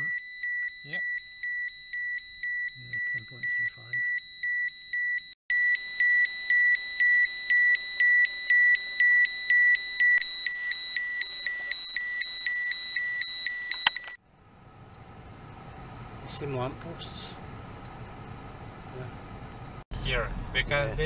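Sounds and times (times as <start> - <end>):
high-pitched alarm beeps: 0.0 - 14.2
faint car interior hum: 14.2 - 21.0.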